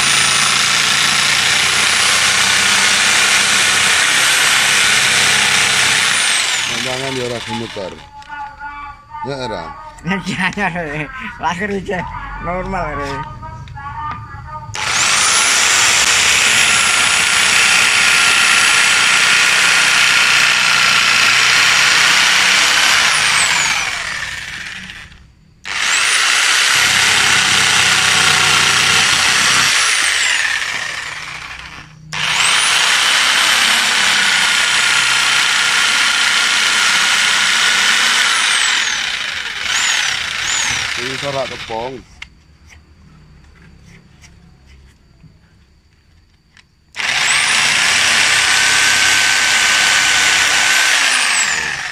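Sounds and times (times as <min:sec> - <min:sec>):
electric jigsaw sawing wood: 0:00.0 - 0:08.1, 0:14.8 - 0:41.9, 0:47.0 - 0:51.9.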